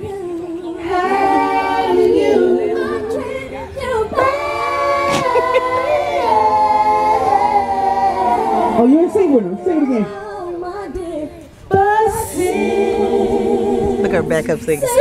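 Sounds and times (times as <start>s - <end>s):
woman singing a cappella: 0.0s - 15.0s
boy singing: 9.6s - 12.7s.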